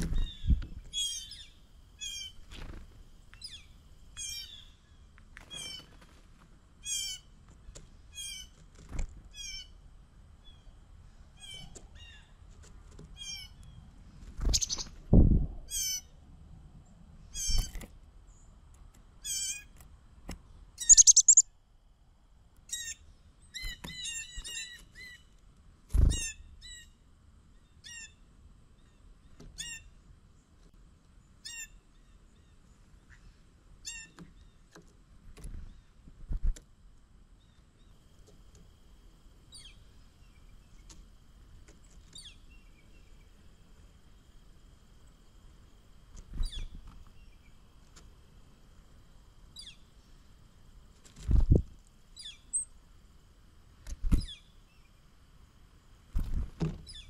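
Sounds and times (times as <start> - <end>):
birds chirping: 0.0 - 6.0, 13.2 - 15.0, 20.8 - 21.5, 39.5 - 41.0, 41.7 - 44.4
wing flutters: 2.1 - 3.6, 5.4 - 6.6, 14.2 - 15.4, 46.1 - 47.2, 50.9 - 51.7, 56.1 - 57.0.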